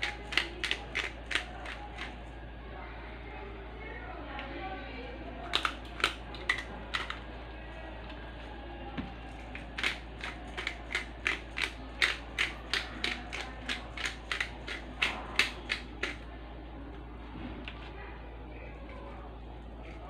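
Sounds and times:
pepper grinder clicking: 0:00.0 - 0:02.1, 0:05.5 - 0:07.2, 0:09.6 - 0:16.2.

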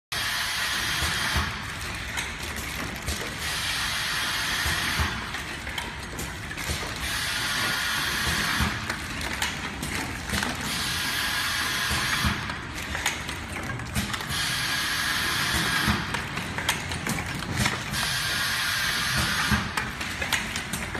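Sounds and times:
machine hiss: 0:00.2 - 0:01.6, 0:18.0 - 0:19.6
packaging machine clatter: 0:00.3 - 0:20.9.

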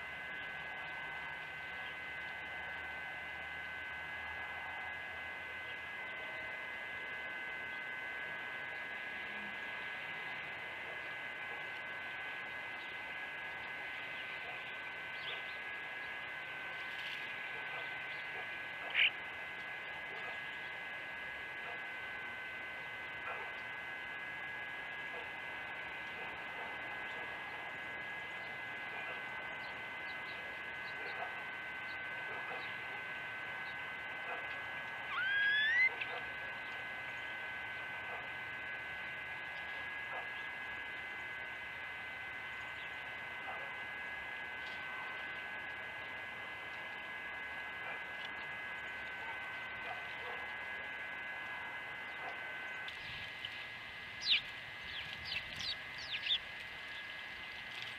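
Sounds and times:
steady electrical hum: 0:00.0 - 0:57.9
bird calls: 0:35.1 - 0:36.7, 0:54.2 - 0:56.5.

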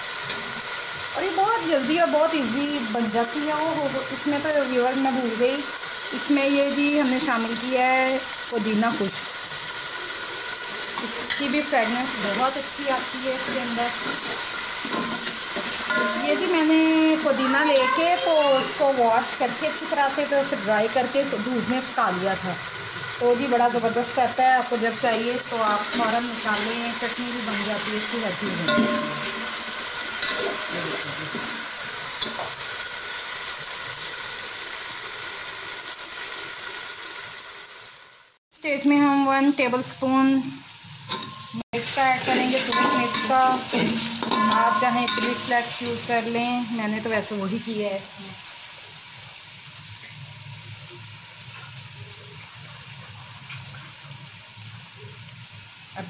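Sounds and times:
masala sizzling in hot oil: 0:00.0 - 0:56.0
metal spoon scraping pot: 0:28.7 - 0:31.5, 0:42.2 - 0:45.9.

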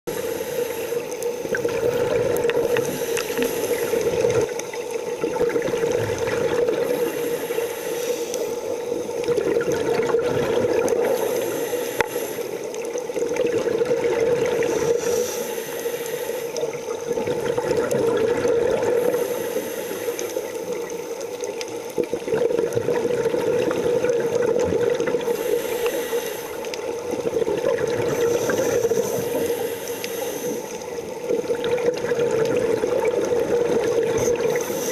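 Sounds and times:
underwater bubbling: 0:00.0 - 0:34.9
scuba regulator hissing: 0:34.2 - 0:34.9.

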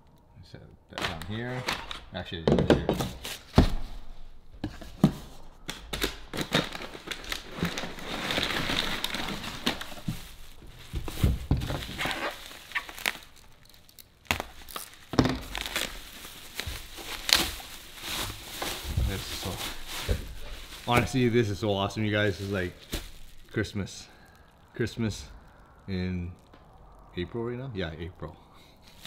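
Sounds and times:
bubble wrap crinkling: 0:05.0 - 0:27.0, 0:28.7 - 0:29.0.

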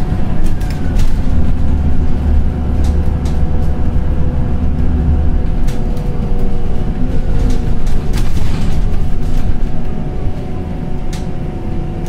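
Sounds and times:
bus engine rumble: 0:00.0 - 0:12.0.

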